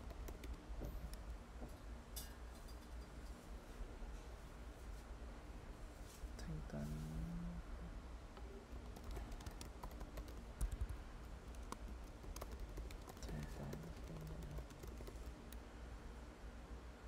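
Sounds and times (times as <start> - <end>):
typing on keyboard: 0.0 - 1.2, 8.8 - 15.6.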